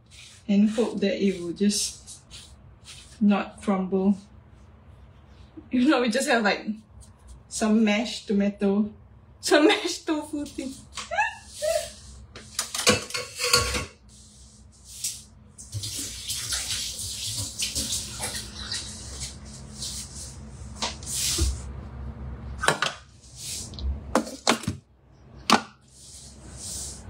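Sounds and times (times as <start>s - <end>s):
tap water running and splashing: 14.9s - 19.3s.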